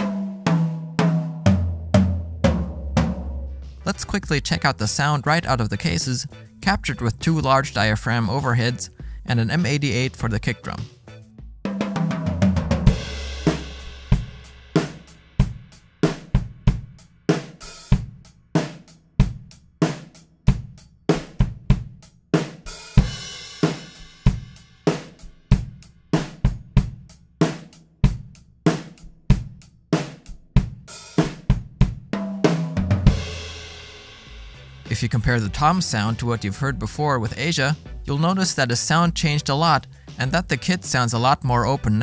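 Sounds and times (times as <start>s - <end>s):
snare drum: 0.0s - 4.6s, 11.7s - 16.4s, 31.1s - 33.3s
drum strokes on toms: 0.0s - 4.7s, 10.8s - 36.2s
cymbals: 12.8s - 16.2s.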